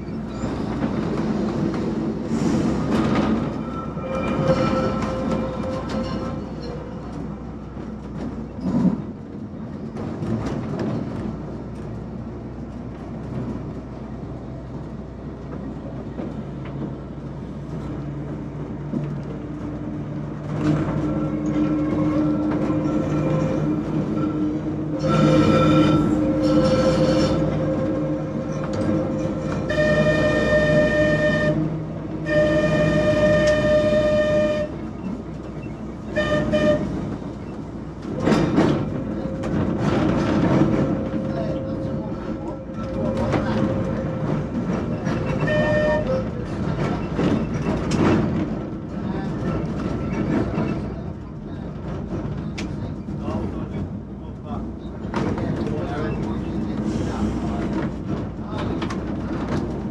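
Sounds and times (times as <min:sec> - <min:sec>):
tram wheels rumbling on rail: 0:00.0 - 0:59.9.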